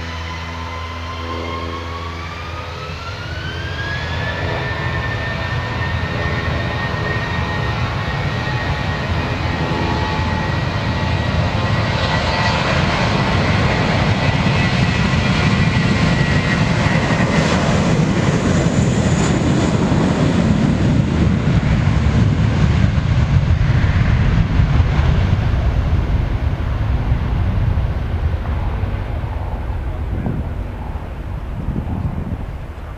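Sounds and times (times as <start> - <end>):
high engine whine: 0.0 - 32.9
jet engines roaring: 0.0 - 32.9.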